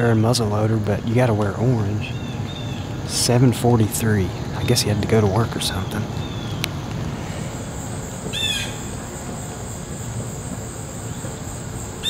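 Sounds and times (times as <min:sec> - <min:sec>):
high-pitched insect drone: 0:01.6 - 0:12.0
bird call: 0:04.1 - 0:12.0.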